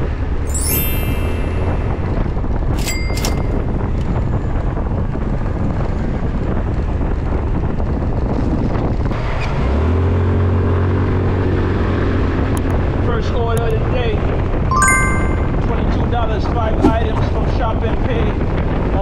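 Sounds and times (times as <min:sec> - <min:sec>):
short high ring: 0:00.5 - 0:02.2, 0:02.8 - 0:03.7, 0:14.7 - 0:15.6
wind rush on microphone: 0:01.0 - 0:09.2, 0:16.2 - 0:19.0.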